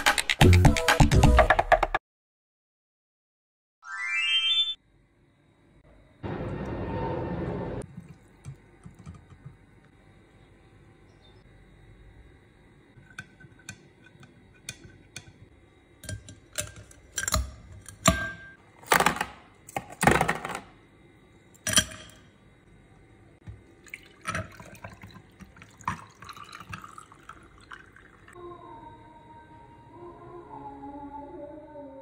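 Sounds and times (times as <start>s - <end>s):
music: 0.0s - 2.0s, 28.4s - 32.0s
juice poured over ice fizzing: 23.7s - 28.4s.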